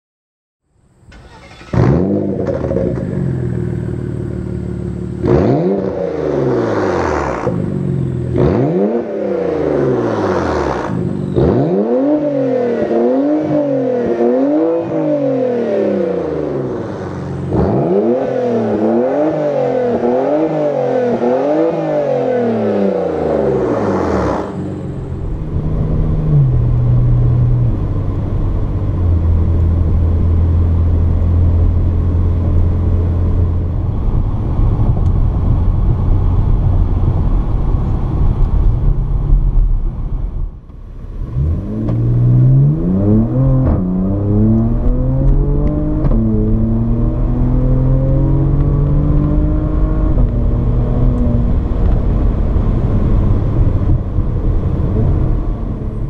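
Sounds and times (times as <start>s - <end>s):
car engine starting and revving: 1.0s - 56.0s
car engine idling: 2.8s - 5.3s.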